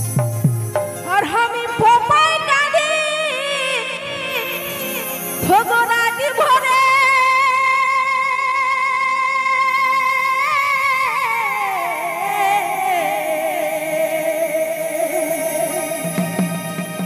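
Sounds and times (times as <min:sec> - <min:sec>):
woman singing through microphone: 0:01.0 - 0:17.0.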